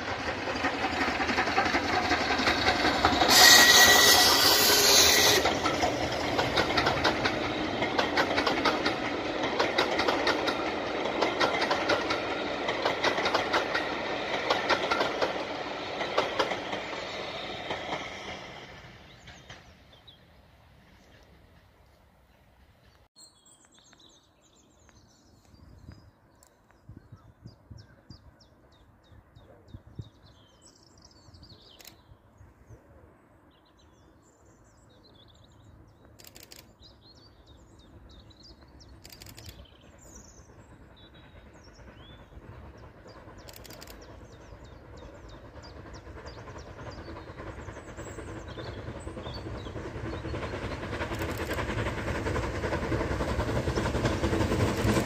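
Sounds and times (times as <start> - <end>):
steam locomotive approaching: 0.0 - 23.1, 27.6 - 55.0
birds singing: 21.0 - 32.9, 33.5 - 51.8.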